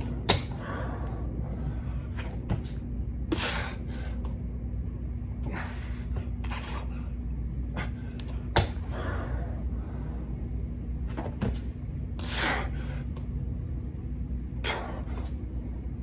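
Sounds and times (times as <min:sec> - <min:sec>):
steady low hum: 0:00.0 - 0:16.0
man exhaling breathily: 0:00.5 - 0:02.1, 0:05.4 - 0:08.2.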